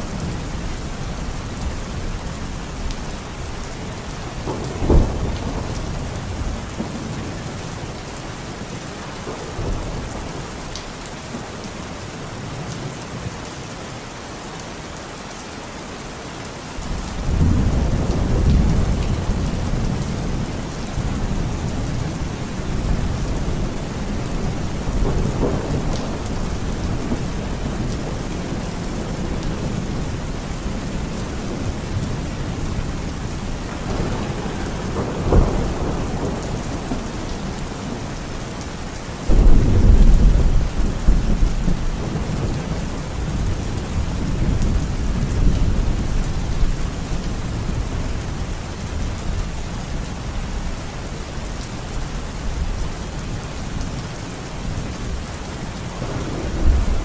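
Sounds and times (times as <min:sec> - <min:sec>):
heavy rain falling: 0:00.0 - 0:57.0
low rumble of thunder: 0:04.3 - 0:07.7, 0:16.9 - 0:50.6, 0:56.0 - 0:57.0.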